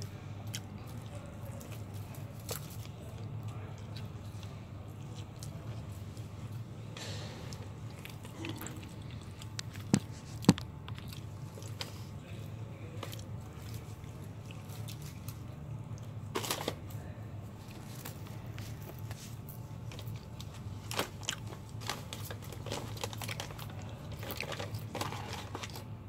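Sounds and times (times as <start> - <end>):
person chewing: 0.0 - 12.3, 13.0 - 16.2, 17.7 - 25.9.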